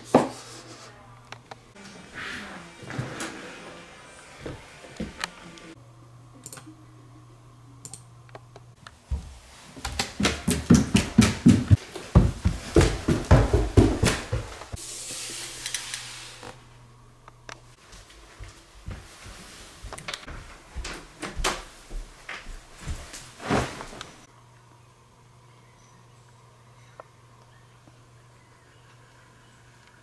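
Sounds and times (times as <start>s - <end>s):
low steady hum: 3.9s - 11.1s
footsteps on wooden stairs: 9.0s - 14.8s, 17.9s - 23.2s.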